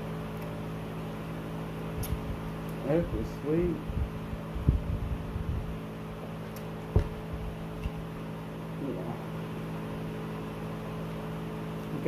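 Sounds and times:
low hum: 0.0 - 12.0.

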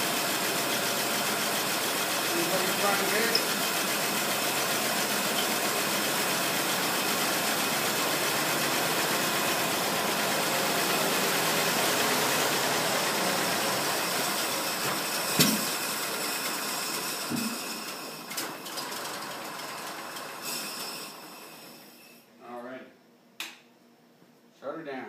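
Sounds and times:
car engine idling: 0.0 - 18.1
sharp click: 23.4 - 23.6.

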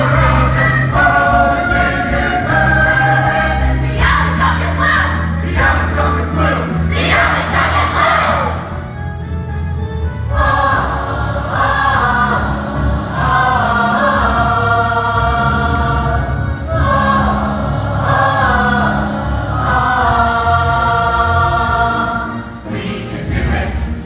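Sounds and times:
choir singing a show tune: 0.0 - 8.8, 10.2 - 24.0.

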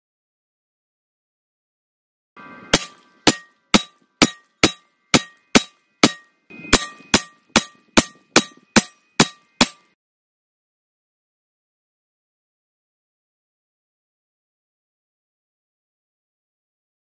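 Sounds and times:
faint ringing tone: 4.9 - 9.6.

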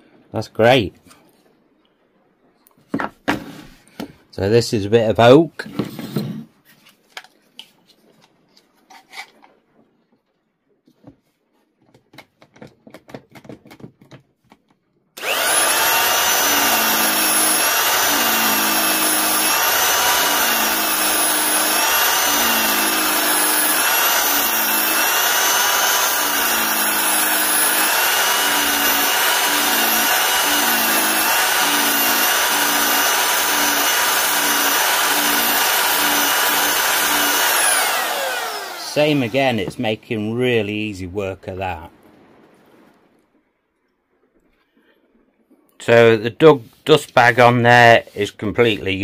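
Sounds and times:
belt sander motor whine: 15.2 - 39.8
sander grinding wood: 15.2 - 39.9.

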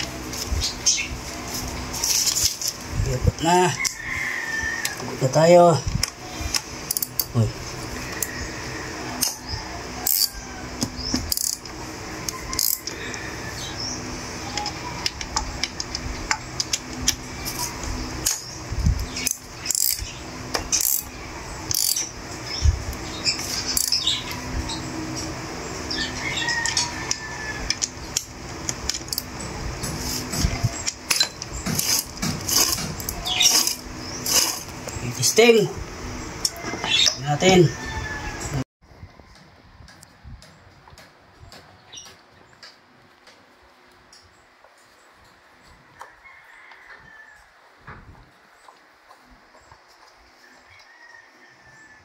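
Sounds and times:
socket wrench clicking: 6.5 - 7.3, 10.0 - 10.3, 11.3 - 11.8, 12.6 - 13.0, 19.2 - 20.0, 20.6 - 21.1, 21.7 - 22.1.

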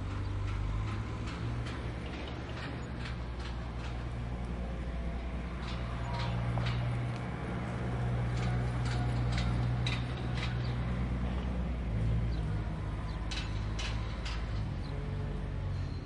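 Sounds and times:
sharp clicks and knocks: 0.0 - 4.7, 8.1 - 11.2, 12.8 - 15.0
vehicle engine humming: 0.0 - 16.0.

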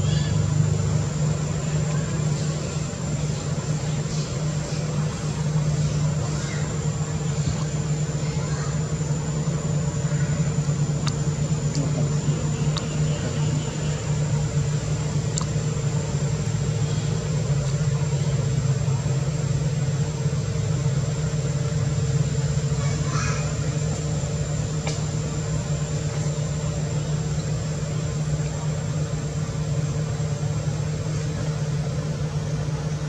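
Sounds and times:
low motor hum with high whine: 0.0 - 33.0.

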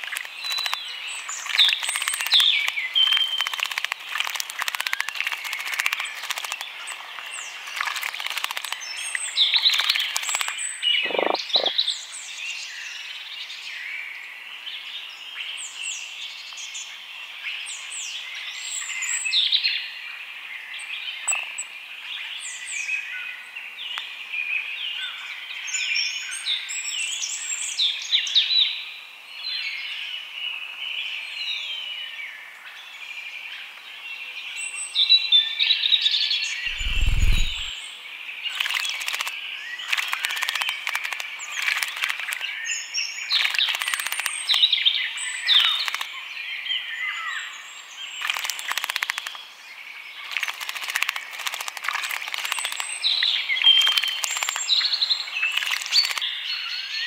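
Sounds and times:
bird splashing in water: 0.0 - 11.4, 36.7 - 37.7, 38.6 - 39.3, 39.9 - 42.5, 43.3 - 44.6, 48.2 - 49.4, 50.2 - 53.2, 53.8 - 54.7, 55.5 - 56.2
songbirds singing and calling: 0.0 - 57.0.

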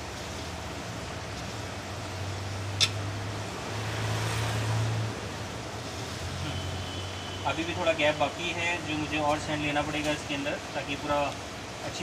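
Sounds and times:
sharp click: 2.8 - 3.0.

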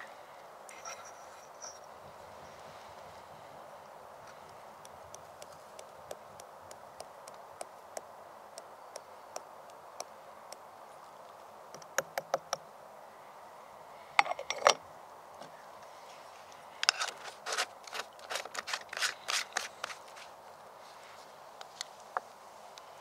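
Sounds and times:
metal coffee pot parts clinking: 14.2 - 14.8.

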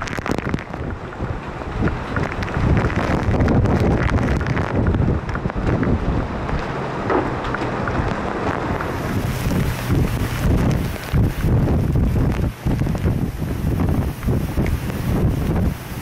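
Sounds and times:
heavy wind-driven rain: 0.0 - 16.0
storm wind: 0.0 - 16.0
wind gusts buffeting microphone: 0.0 - 16.0.

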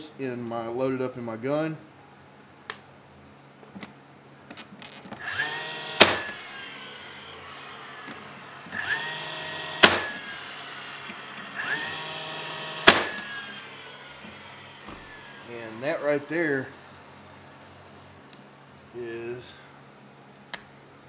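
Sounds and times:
nail gun motor whine: 4.8 - 19.7
nail gun snapping: 5.2 - 7.2, 8.0 - 16.2.

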